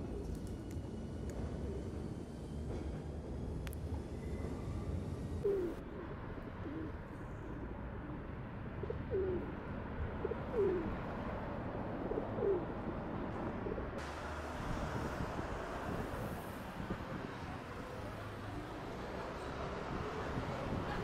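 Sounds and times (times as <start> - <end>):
pigeon cooing: 5.4 - 5.8, 8.8 - 9.6, 10.2 - 10.9, 12.1 - 12.7.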